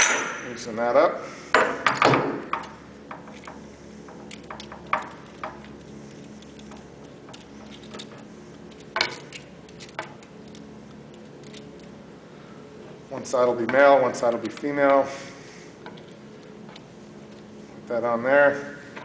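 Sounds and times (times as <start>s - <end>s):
steady low hum: 0.0s - 19.0s
hose fittings clicking and tapping: 1.8s - 5.7s.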